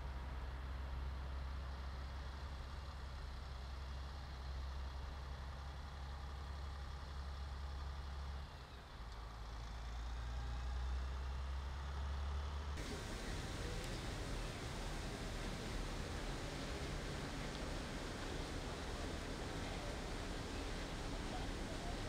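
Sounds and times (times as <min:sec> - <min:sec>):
truck diesel engine droning: 0:10.8 - 0:22.0.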